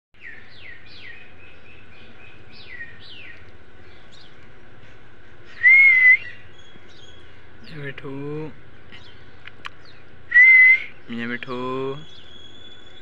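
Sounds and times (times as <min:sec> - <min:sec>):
parakeet whistle-like call: 0:05.5 - 0:07.2, 0:11.9 - 0:13.0.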